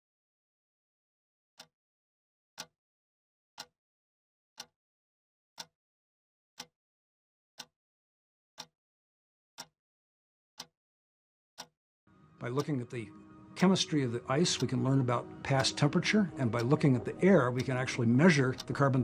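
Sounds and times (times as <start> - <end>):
clock ticking: 12.5 - 13.0, 13.6 - 19.0.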